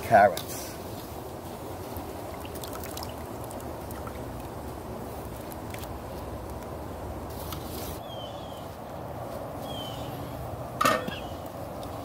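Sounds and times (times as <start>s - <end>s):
pot of broth boiling: 1.1s - 7.4s
bird chirps: 8.0s - 8.8s, 9.6s - 10.4s, 11.0s - 11.5s
metal pot lid clank: 10.8s - 11.2s.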